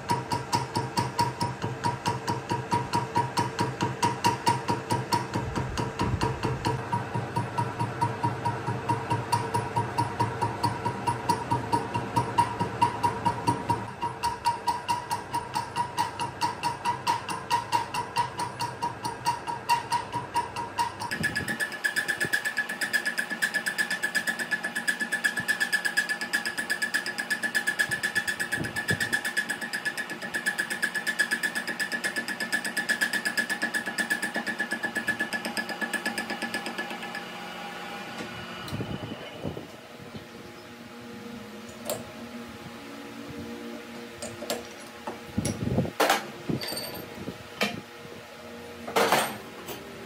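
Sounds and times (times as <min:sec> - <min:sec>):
metal lathe whine: 0:06.9 - 0:45.6.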